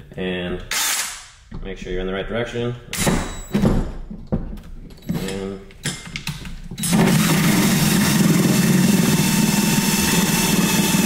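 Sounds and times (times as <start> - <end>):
drill with hole saw cutting plastic: 0.7 - 1.2, 6.8 - 11.0.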